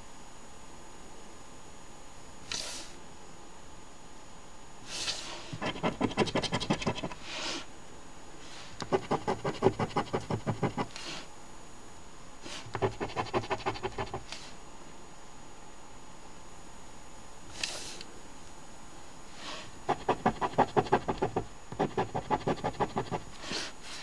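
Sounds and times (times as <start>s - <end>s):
coin scratching lottery ticket: 5.6s - 7.2s, 8.8s - 11.0s, 12.7s - 14.3s, 19.9s - 23.4s.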